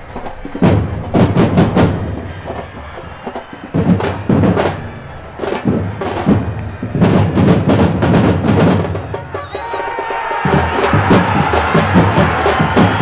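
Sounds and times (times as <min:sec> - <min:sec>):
loud drum hits: 0:10.3 - 0:13.0.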